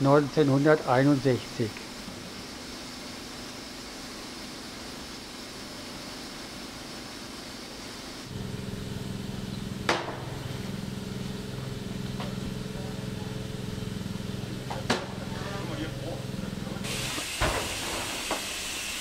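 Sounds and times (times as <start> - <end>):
steady hissing noise: 0.0 - 9.4
low machine hum: 8.3 - 17.2.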